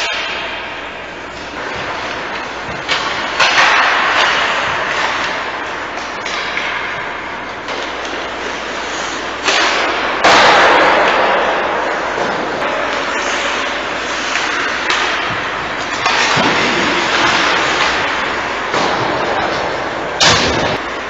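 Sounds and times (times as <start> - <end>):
hiss of skating: 8.5 - 9.6.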